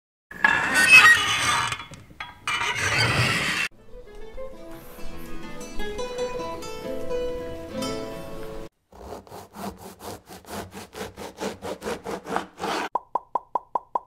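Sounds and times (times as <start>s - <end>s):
guitar music: 3.7s - 8.7s
knife sawing through crusty bread: 8.9s - 12.9s.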